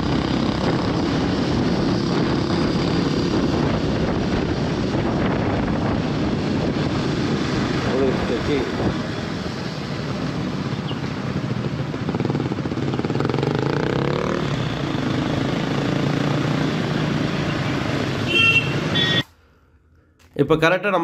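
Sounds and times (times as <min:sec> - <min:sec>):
wind noise: 0:00.0 - 0:12.8
motorcycle engine running: 0:10.2 - 0:17.4.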